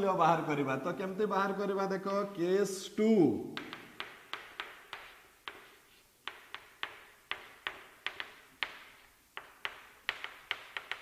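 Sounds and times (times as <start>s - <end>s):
chalk tapping on chalkboard: 3.6s - 11.0s.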